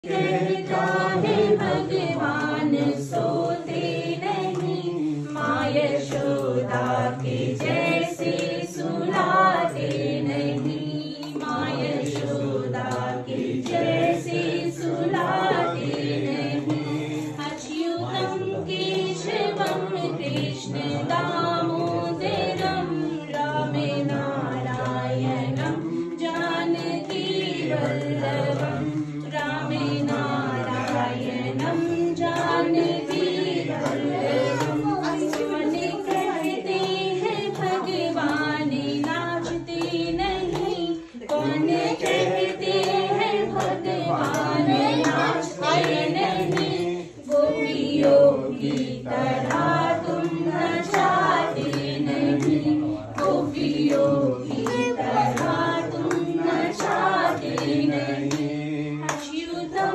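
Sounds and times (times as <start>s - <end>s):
group of voices singing: 0.0s - 59.9s
woman singing: 16.7s - 52.6s, 59.0s - 59.9s.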